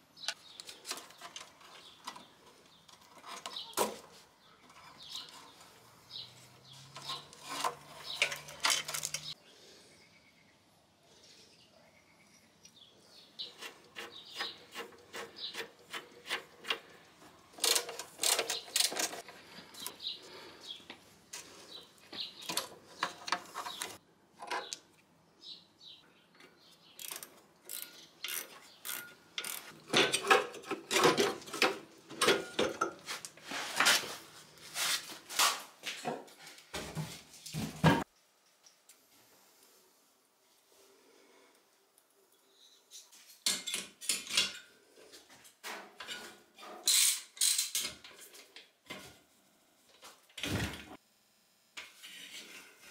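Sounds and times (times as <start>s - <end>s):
ratchet wrench clicking: 27.0s - 29.7s.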